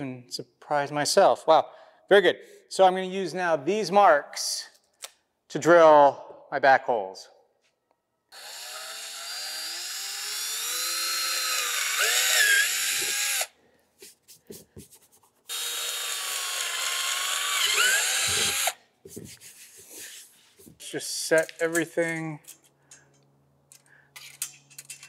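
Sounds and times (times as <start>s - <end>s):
power drill boring plastic: 8.3s - 13.5s, 15.5s - 18.8s.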